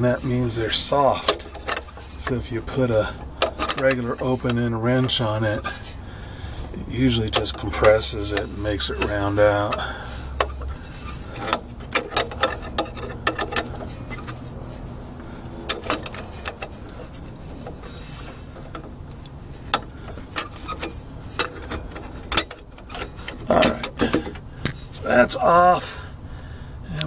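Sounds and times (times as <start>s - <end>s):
wrench clicking on metal nut: 7.3s - 14.4s.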